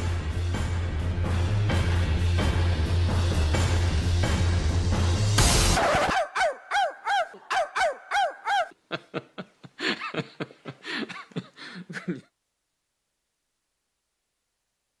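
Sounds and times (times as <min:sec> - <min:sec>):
woman imitating dog barks: 0:05.9 - 0:08.8.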